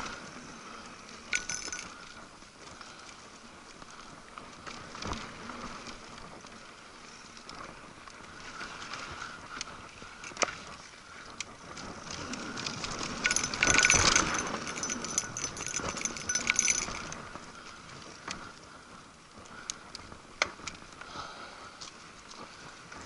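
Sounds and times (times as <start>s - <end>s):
bike tyres rolling on dirt: 0.0s - 23.0s
bike chain rattling and clicking: 1.3s - 3.1s, 11.7s - 18.4s.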